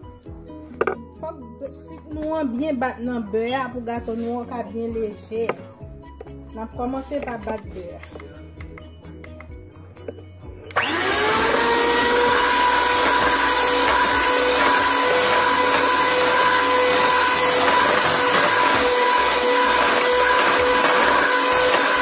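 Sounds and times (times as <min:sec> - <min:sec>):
electric hand mixer whining: 0:10.7 - 0:22.0.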